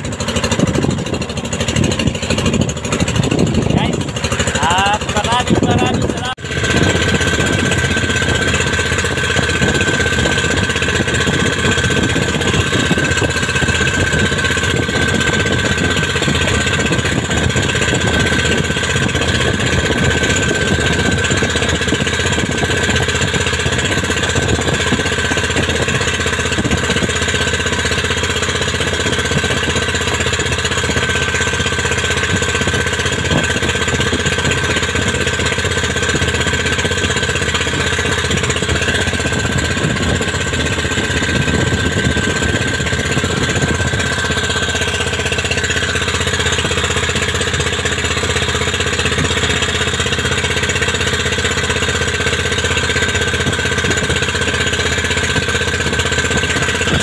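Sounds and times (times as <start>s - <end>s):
small boat engine chugging: 0.0s - 57.0s.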